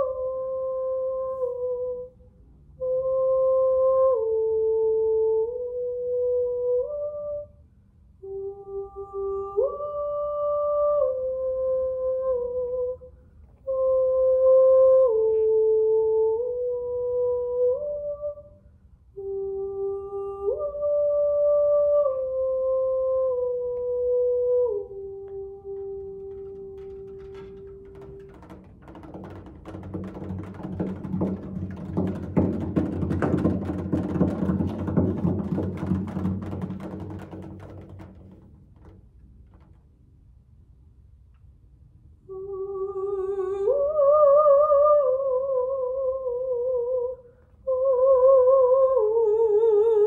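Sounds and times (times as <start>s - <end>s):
cello percussive plucks and strikes: 25.8s - 39.7s.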